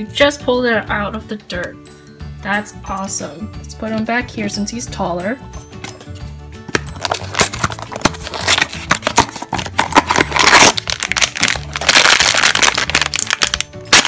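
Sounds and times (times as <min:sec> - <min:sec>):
foil bag crinkling: 0:07.0 - 0:14.0.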